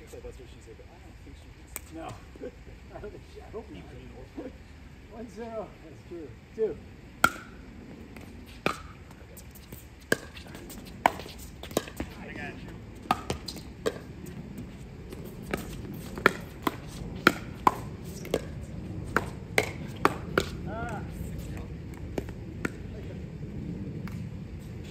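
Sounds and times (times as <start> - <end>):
ball bouncing on court: 7.2 - 7.6, 8.2 - 14.4, 15.1 - 23.0
paddles hitting plastic ball: 13.0 - 14.1.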